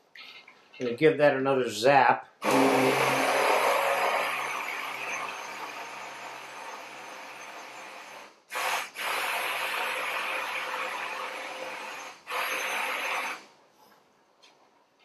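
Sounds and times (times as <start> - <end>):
stick blender whirring: 2.4 - 13.5.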